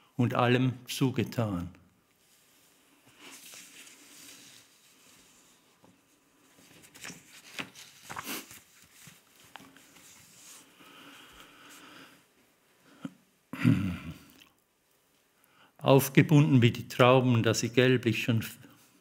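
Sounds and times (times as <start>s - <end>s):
paper sheets rustling: 3.1s - 10.8s.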